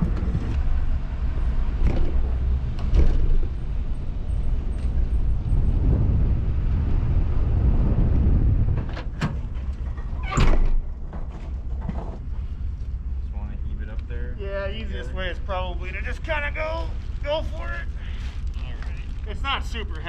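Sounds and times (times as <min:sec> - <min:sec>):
pickup truck engine rumble: 0:00.0 - 0:20.0
loud clunk: 0:01.8 - 0:03.6.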